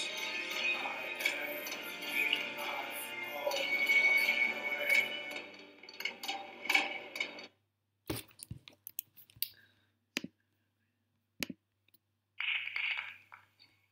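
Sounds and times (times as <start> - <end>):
performance music: 0.0 - 7.2.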